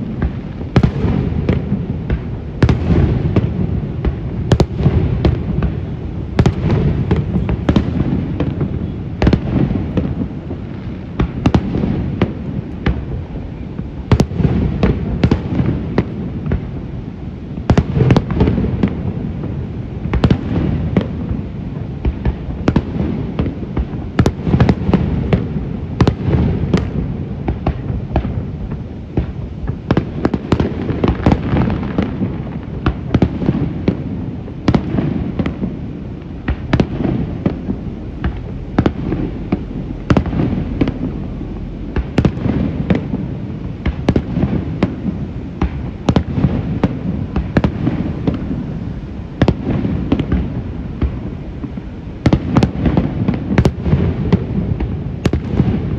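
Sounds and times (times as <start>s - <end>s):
fireworks bursting bangs: 0.0s - 55.9s
low rumble: 36.4s - 44.1s.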